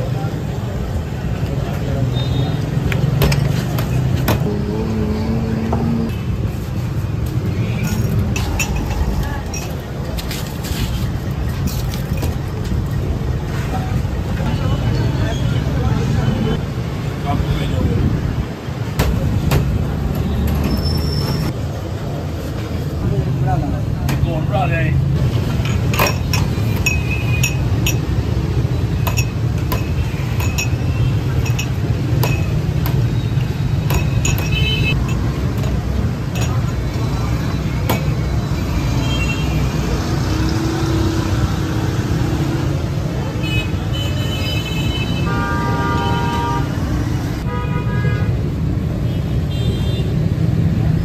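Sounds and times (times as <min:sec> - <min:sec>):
traffic rumble: 0:00.0 - 0:51.0
background voices: 0:04.2 - 0:06.2
glasses and ice clinking: 0:07.8 - 0:09.9, 0:25.6 - 0:28.1, 0:29.0 - 0:32.7, 0:33.9 - 0:36.8.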